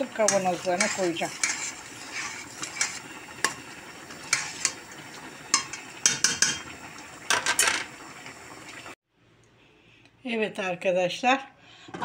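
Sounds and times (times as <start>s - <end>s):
spoon scraping a metal pot: 0.2s - 4.8s.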